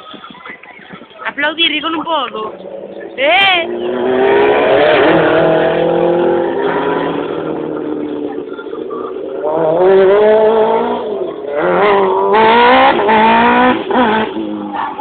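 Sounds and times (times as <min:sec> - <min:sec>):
race car engines revving: 0:01.6 - 0:15.0.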